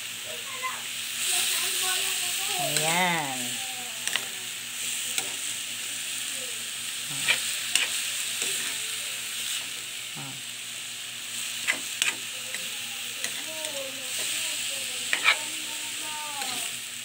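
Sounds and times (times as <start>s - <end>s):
vegetables sizzling in frying pan: 0.0s - 17.0s
metal spoon scraping pan: 7.2s - 8.8s, 15.1s - 15.6s.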